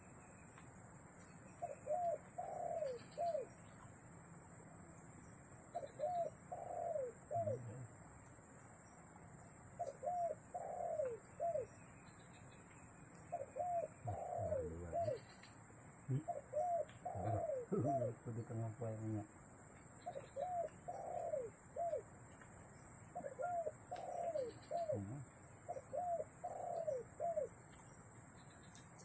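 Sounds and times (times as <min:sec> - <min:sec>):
dove cooing: 0:01.6 - 0:03.6, 0:05.7 - 0:07.9, 0:09.8 - 0:11.8, 0:13.3 - 0:15.3, 0:16.1 - 0:19.2, 0:20.0 - 0:22.1, 0:23.1 - 0:27.6.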